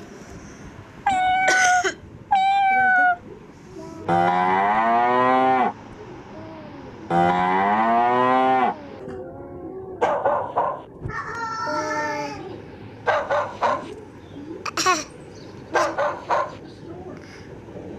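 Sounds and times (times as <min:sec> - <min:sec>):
cat meowing: 0:01.1 - 0:03.2
cow mooing: 0:04.1 - 0:05.8, 0:07.1 - 0:08.8.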